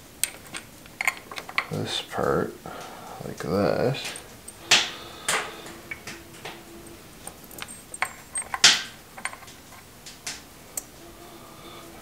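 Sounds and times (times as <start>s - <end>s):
metal clicks and knocks: 0.2s - 2.4s, 4.0s - 10.9s.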